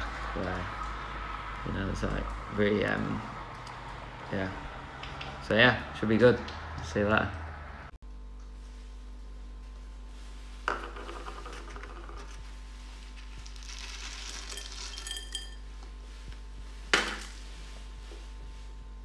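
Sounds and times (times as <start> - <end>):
steady low hum: 0.0 - 19.0
toppings rattling onto plate: 14.2 - 15.6.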